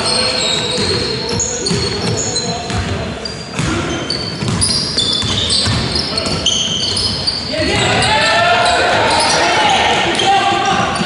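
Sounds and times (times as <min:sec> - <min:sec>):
trainers squeaking on wooden court: 0:00.0 - 0:11.0
basketball bouncing: 0:00.6 - 0:06.4
players calling out: 0:03.2 - 0:11.0.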